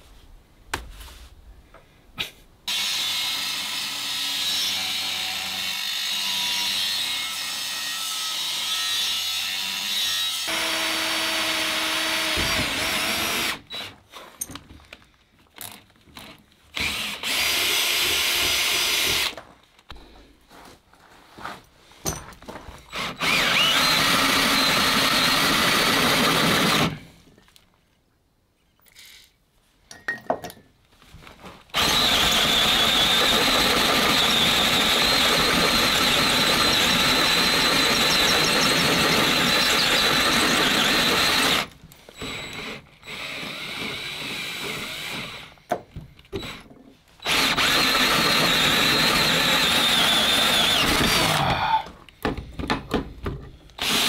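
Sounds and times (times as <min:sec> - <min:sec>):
cordless drill boring into steel: 0:16.8 - 0:19.3, 0:22.9 - 0:27.0, 0:31.8 - 0:45.6, 0:47.2 - 0:51.8, 0:53.8 - 0:54.0
drill bit squealing: 0:22.9 - 0:26.8, 0:31.8 - 0:44.2, 0:47.2 - 0:51.9.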